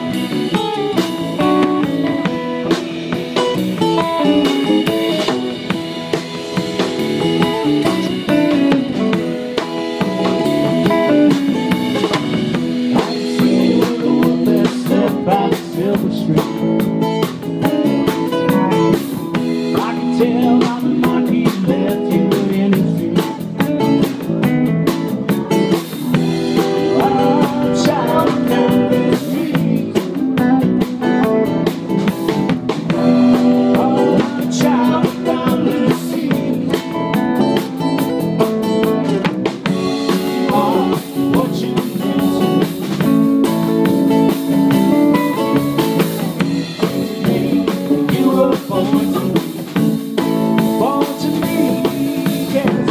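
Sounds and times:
drum kit: 0:00.0 - 0:52.9
electric guitars: 0:00.0 - 0:52.9
man singing: 0:07.2 - 0:09.4, 0:12.9 - 0:24.4, 0:26.6 - 0:31.8, 0:33.0 - 0:37.8, 0:39.9 - 0:52.9.

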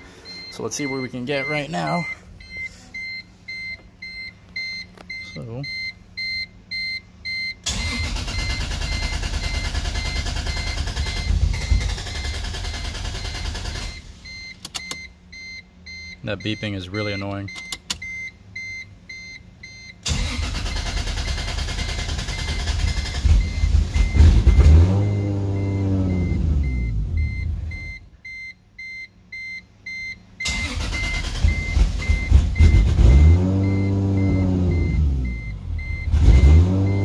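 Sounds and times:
high electronic warning beep: 0:00.0 - 0:37.0
car engine struggling to idle: 0:07.6 - 0:14.1, 0:20.0 - 0:25.8, 0:30.4 - 0:33.0.

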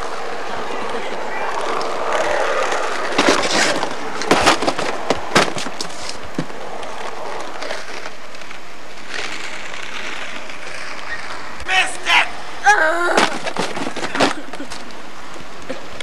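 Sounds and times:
skateboard deck clacking on pavement: 0:00.0 - 0:08.6
skateboard wheels rolling on asphalt: 0:00.0 - 0:16.0.

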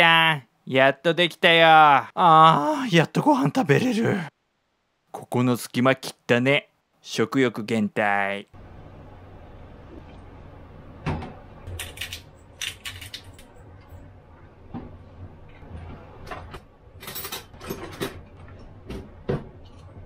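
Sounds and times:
cutlery drawer opening: 0:15.6 - 0:18.3
utensils rattling in drawer: 0:17.0 - 0:18.2.

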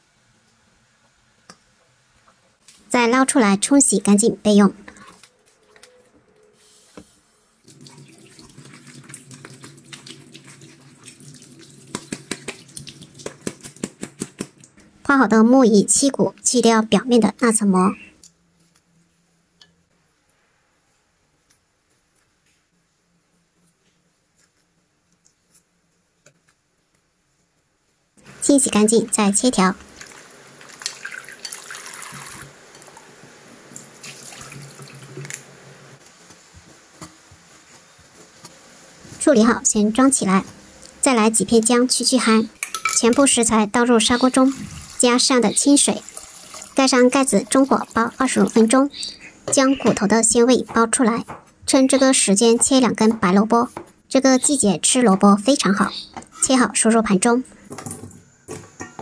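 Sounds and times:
tap water running: 0:07.6 - 0:13.9, 0:28.2 - 0:35.8, 0:42.6 - 0:48.9.

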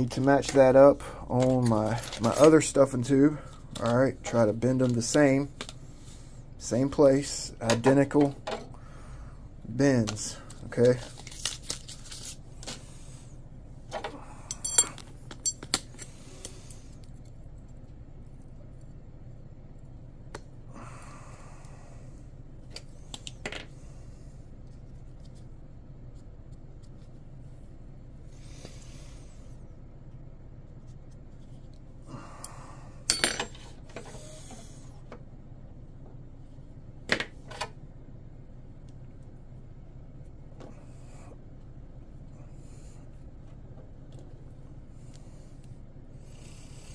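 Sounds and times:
steady low hum: 0:00.0 - 0:46.9
metal parts and tools clinking: 0:14.5 - 0:15.9, 0:33.1 - 0:34.0.

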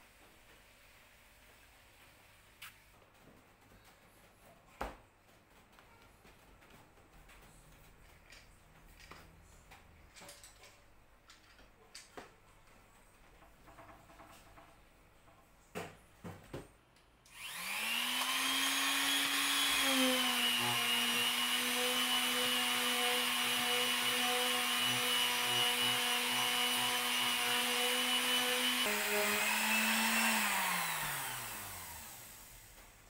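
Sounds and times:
electric sander whining: 0:17.3 - 0:32.6.

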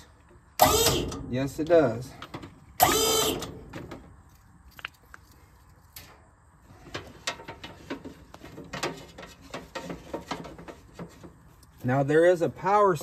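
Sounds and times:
hydraulic pump motor: 0:00.6 - 0:01.2, 0:02.8 - 0:03.6.

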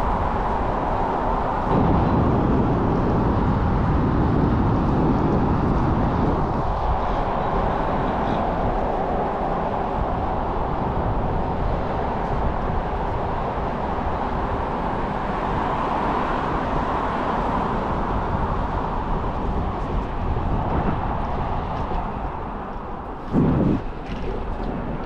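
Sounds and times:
wheels rolling on pavement: 0:00.0 - 0:25.0
wind rushing: 0:00.0 - 0:25.0.

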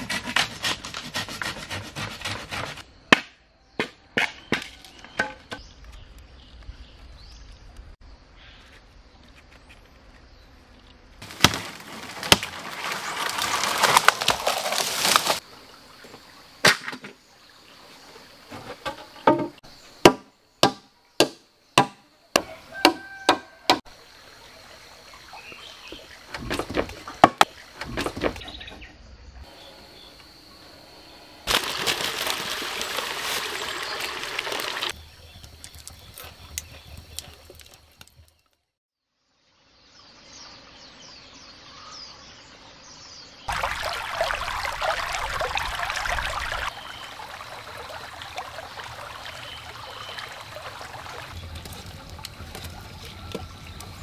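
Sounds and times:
wooden knocks on logs: 0:18.5 - 0:23.8, 0:26.4 - 0:28.4.

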